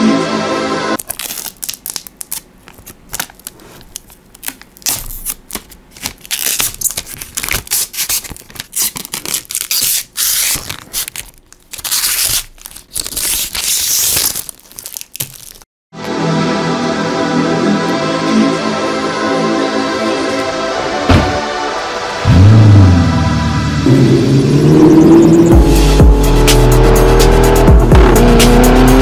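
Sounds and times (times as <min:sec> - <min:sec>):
electronic background music: 0:00.0 - 0:01.0, 0:16.0 - 0:29.0
plastic film peeling and crackling: 0:01.0 - 0:15.7.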